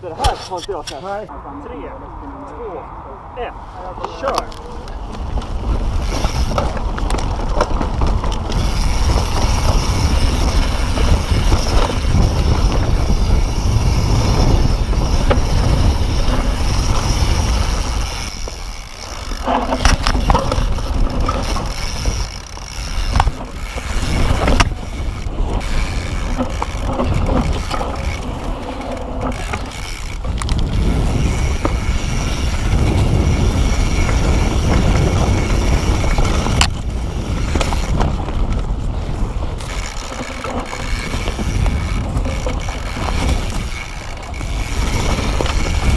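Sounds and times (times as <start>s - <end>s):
wind on microphone: 0.0s - 45.9s
bike knocking and rattling: 4.0s - 45.9s
tyres rolling over rock and dirt: 4.3s - 45.9s.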